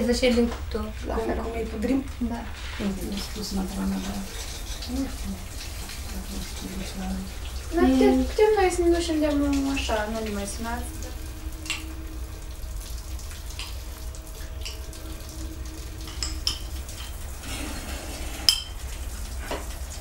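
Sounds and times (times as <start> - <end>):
steady low hum: 0.0 - 20.0
dishes and utensils clinking: 14.4 - 15.2, 16.0 - 19.6.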